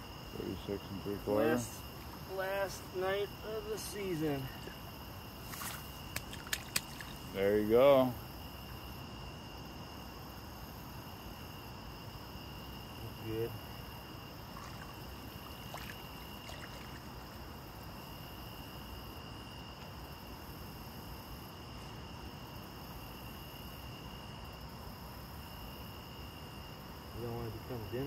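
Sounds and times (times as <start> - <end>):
night insects chirping: 0.0 - 28.0
water sloshing and dribbling: 4.0 - 7.4, 14.4 - 17.5.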